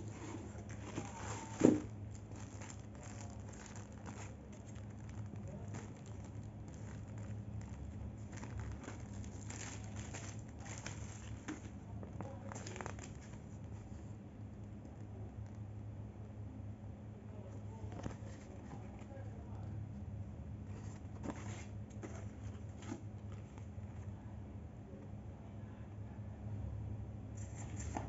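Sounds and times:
plastic bag and paper rustling: 0.0 - 14.1
steady low hum: 0.0 - 28.0.

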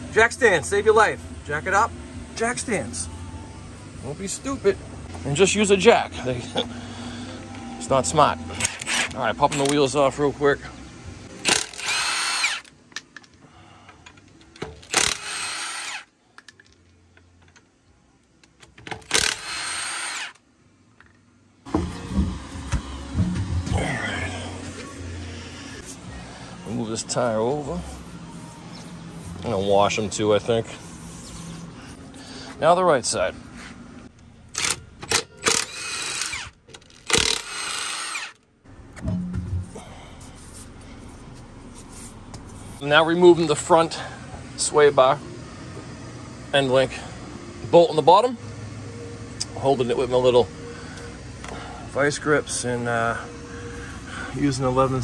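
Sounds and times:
impact wrench running: 8.5 - 9.7, 11.4 - 12.7, 14.6 - 16.1, 18.9 - 20.4, 34.5 - 38.4
impact wrench hammering: 14.6 - 16.1, 37.1 - 38.4
low thumps: 39.0 - 40.0.

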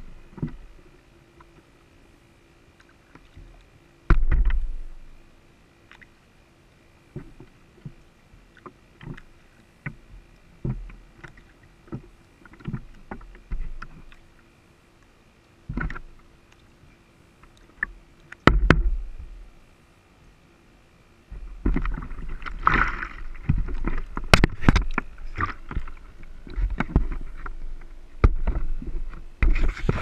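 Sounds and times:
water splashing against boat hull: 2.8 - 5.0, 15.6 - 16.7, 21.3 - 30.0.

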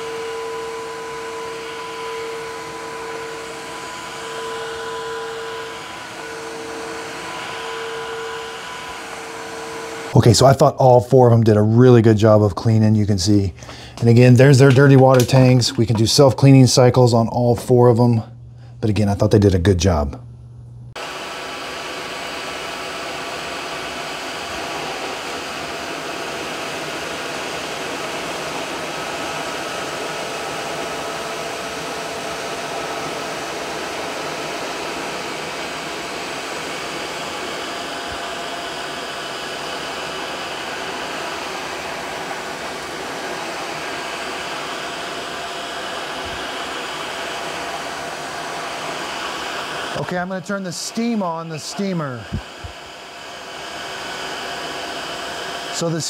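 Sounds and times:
floor cleaner motors whirring: 0.0 - 10.6, 21.0 - 56.0.

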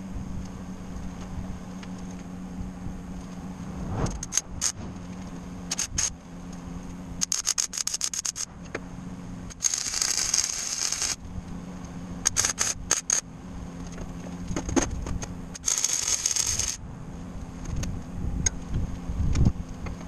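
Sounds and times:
welding arc crackling: 5.7 - 6.2, 7.2 - 8.5, 9.5 - 11.2, 12.2 - 13.2, 15.5 - 16.8.

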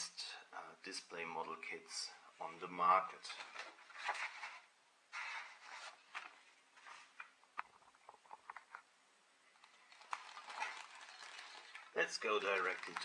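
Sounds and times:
paper rustling: 3.2 - 8.8, 9.5 - 13.0.

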